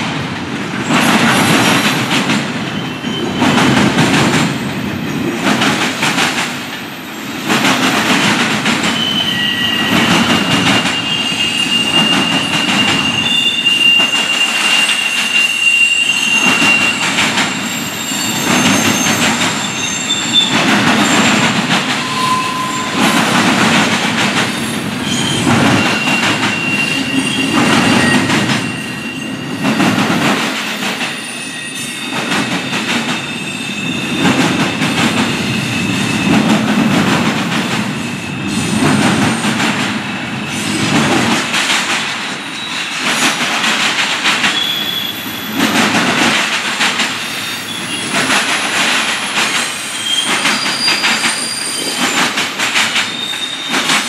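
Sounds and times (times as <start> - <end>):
train wheels rumbling on rails: 0.0 - 54.0
high-pitched wheel squeal: 9.0 - 10.0, 10.8 - 23.2, 24.6 - 29.6, 49.7 - 52.2.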